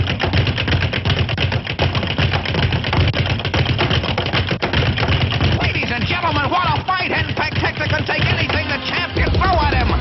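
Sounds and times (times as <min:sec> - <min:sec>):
rapid clatter of sharp knocks: 0:00.0 - 0:10.0.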